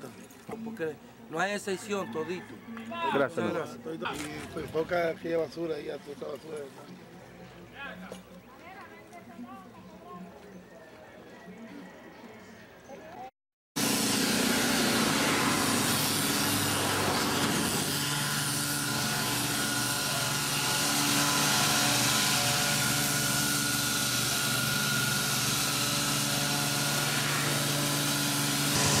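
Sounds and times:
fogging machine buzzing drone: 0:13.8 - 0:29.0.

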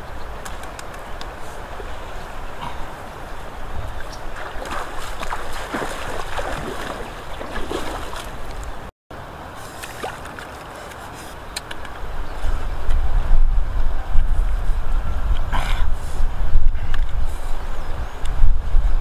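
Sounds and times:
wind on microphone: 0:00.0 - 0:08.9, 0:09.8 - 0:19.0
flowing river water: 0:00.0 - 0:12.3.

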